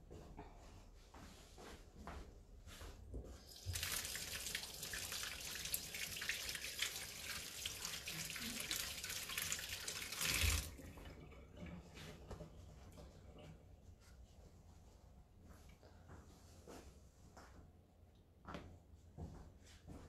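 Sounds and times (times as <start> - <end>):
tap water running over hands: 3.5 - 13.6.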